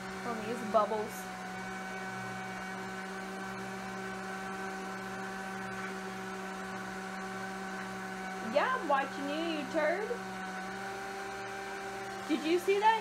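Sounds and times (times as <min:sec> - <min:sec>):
small motor electrical hum: 0:00.0 - 0:13.0.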